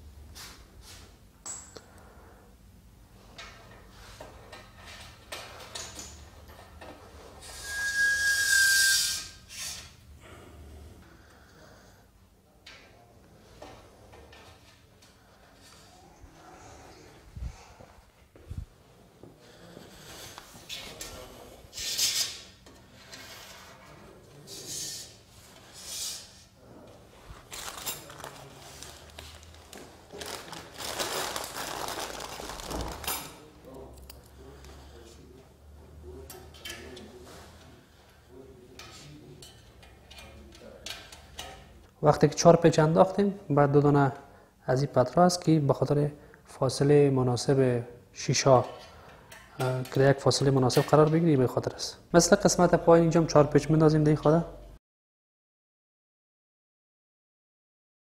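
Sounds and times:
high squeal: 0:07.4 - 0:09.8
hissing scrape: 0:19.9 - 0:26.5
light clicks of metal parts: 0:38.7 - 0:41.7.

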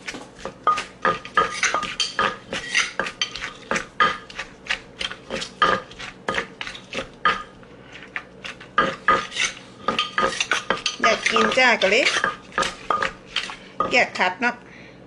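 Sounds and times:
wooden pestle pounding in mortar: 0:00.0 - 0:07.5, 0:08.4 - 0:14.2
metal spoon clinking on mortar: 0:00.6 - 0:04.3, 0:08.8 - 0:14.1.

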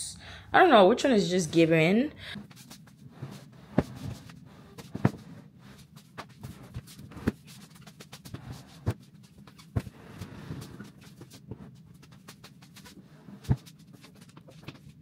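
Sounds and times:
furniture knocks and thuds: 0:03.4 - 0:05.4.

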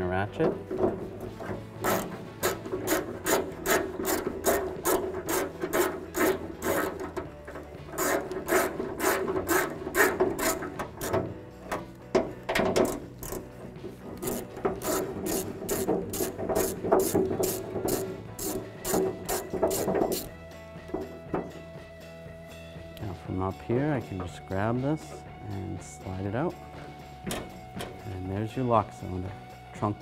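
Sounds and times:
hand ratchet clicking: 0:00.6 - 0:21.6.

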